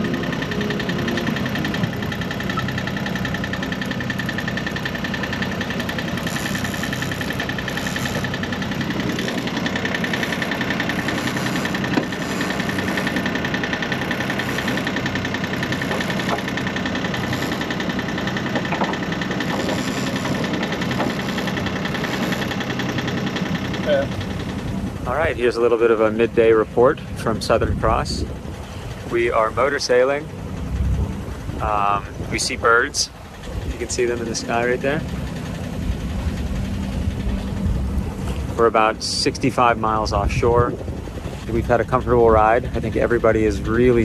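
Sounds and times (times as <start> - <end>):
high-pitched whine: 0.0 - 3.4
boat engine running: 0.0 - 44.0.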